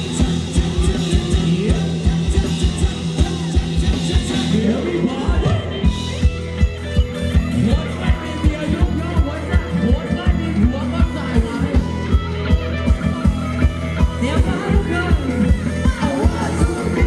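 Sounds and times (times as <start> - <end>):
person singing: 0.0 - 5.9, 7.5 - 12.2, 14.0 - 17.0
bass line: 0.0 - 17.0
live band over loudspeakers: 0.0 - 17.0
steady drum beat: 0.0 - 17.0.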